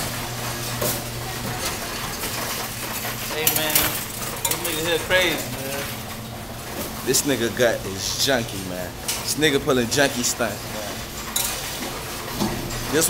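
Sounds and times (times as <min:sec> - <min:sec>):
coins clinking and rattling: 0:02.2 - 0:05.4.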